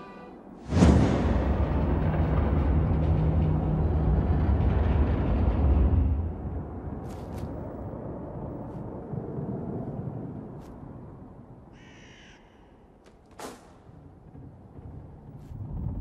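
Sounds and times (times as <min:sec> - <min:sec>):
low rumble: 0:00.4 - 0:11.7, 0:14.0 - 0:16.0
crow cawing: 0:11.7 - 0:12.9.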